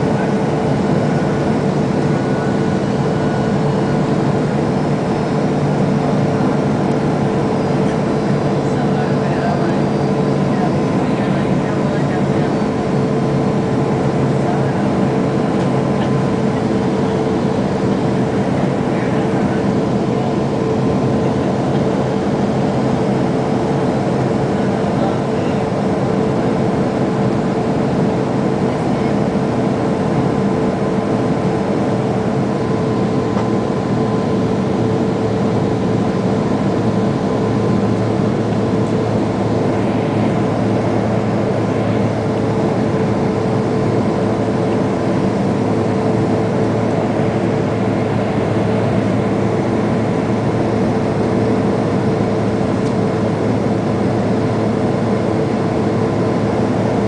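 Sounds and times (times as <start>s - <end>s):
jet cabin airflow and engines: 0.0s - 57.0s.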